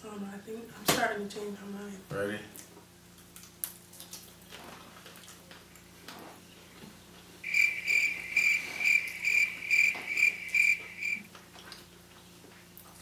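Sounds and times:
high pulsing chirping trill: 7.4s - 11.3s.

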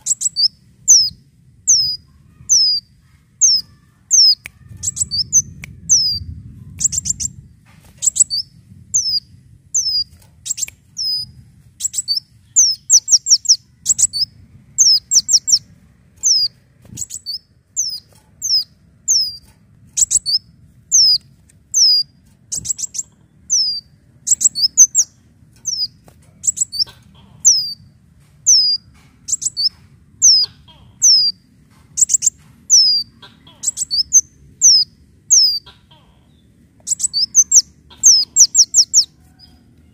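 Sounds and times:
sunbird calling: 0.0s - 7.4s, 8.0s - 19.4s, 20.0s - 27.9s, 28.5s - 31.4s, 32.0s - 39.4s
sharp bird ticks: 6.8s - 7.3s, 9.8s - 11.2s, 11.8s - 14.2s, 16.2s - 27.8s, 28.5s - 30.4s, 31.0s - 35.6s, 36.8s - 39.1s.

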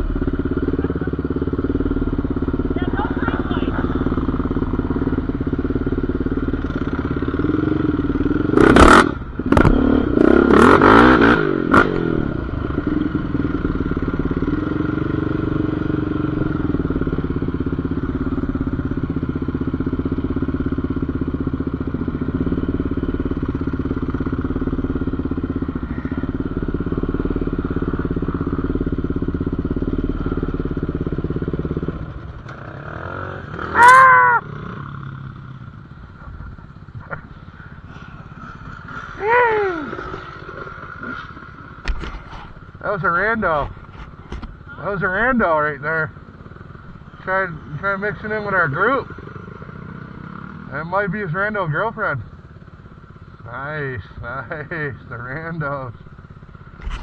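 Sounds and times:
off-road vehicle engine revving: 0.0s - 19.0s.

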